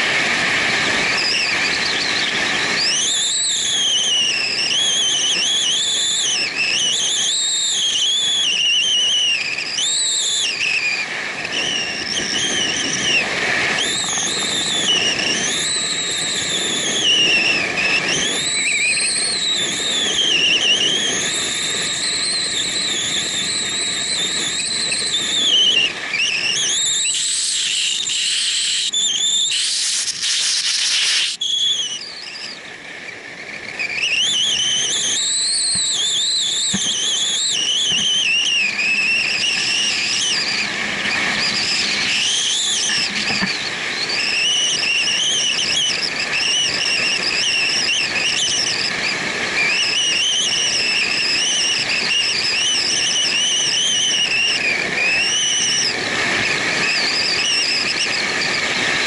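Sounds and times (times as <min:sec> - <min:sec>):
wind rushing over camera: 0:00.0 - 0:59.0
high wavering whistle: 0:00.7 - 0:59.0.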